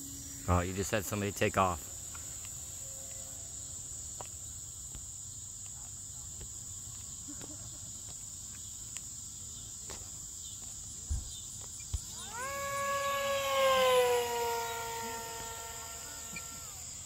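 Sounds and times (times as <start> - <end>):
model jet fan whine passing: 0.0 - 4.8, 12.0 - 17.0
crickets chirping: 0.0 - 17.0.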